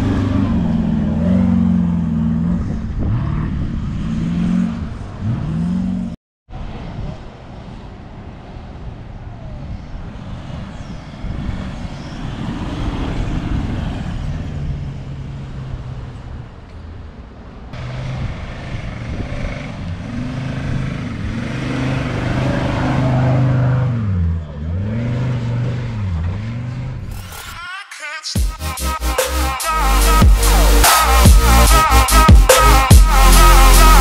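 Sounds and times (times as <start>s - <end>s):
off-road engines under load: 0.0s - 6.2s, 10.0s - 27.7s
wind noise: 2.3s - 5.5s, 6.5s - 17.0s.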